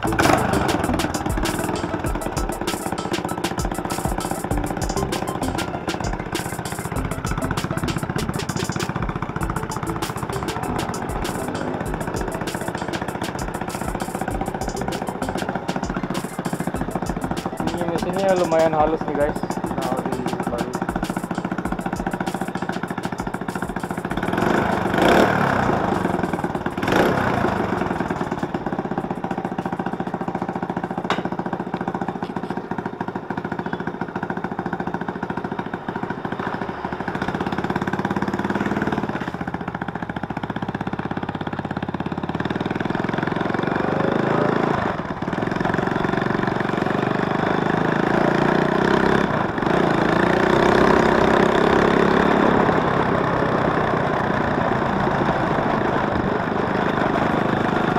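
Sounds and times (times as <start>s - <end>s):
motorcycle engine revving: 0.0s - 57.9s
sharp knocks: 31.1s - 31.4s.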